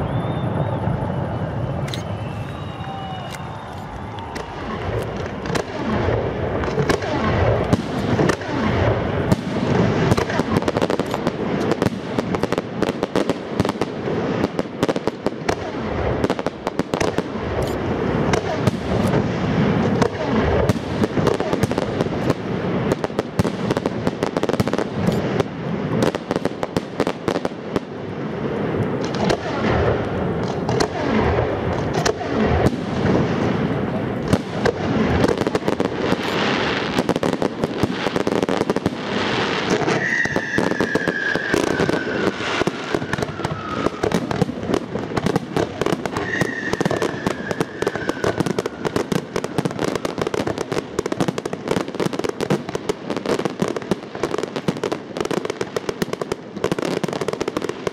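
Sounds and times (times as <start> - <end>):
fireworks bangs and crackles: 0.0 - 57.9.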